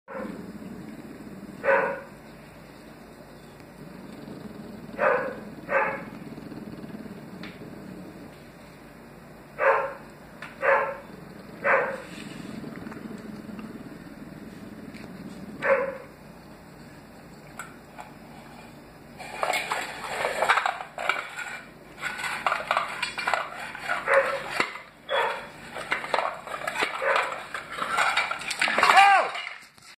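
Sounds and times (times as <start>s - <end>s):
small dog barking: 1.6s - 2.1s, 5.0s - 6.1s, 9.6s - 12.0s, 15.6s - 16.1s, 25.1s - 25.5s
clinks and clatter: 19.2s - 24.9s, 25.8s - 30.0s.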